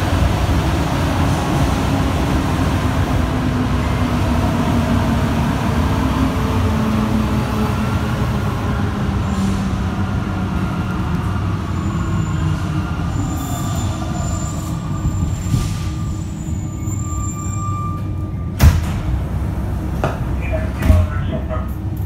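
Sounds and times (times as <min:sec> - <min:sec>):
metro train low rumble: 0:00.0 - 0:22.0
high squeal tones: 0:11.7 - 0:18.5.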